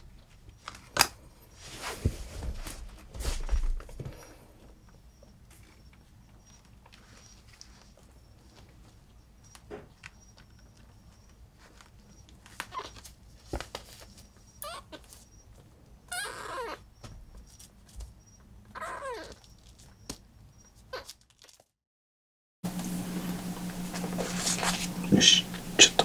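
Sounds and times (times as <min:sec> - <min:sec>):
kitten mewing: 0:16.1 - 0:16.8, 0:18.7 - 0:19.4.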